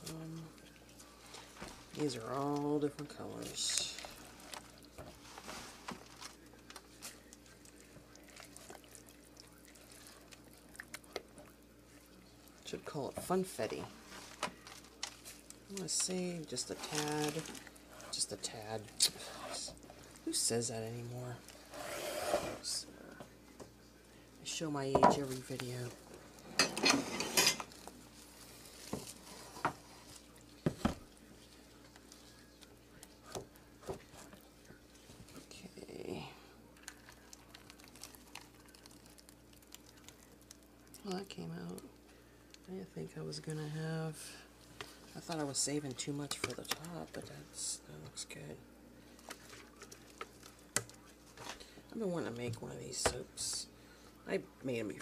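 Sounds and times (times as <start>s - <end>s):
spatula stirring thick batter: 0.0s - 22.8s, 27.7s - 41.8s.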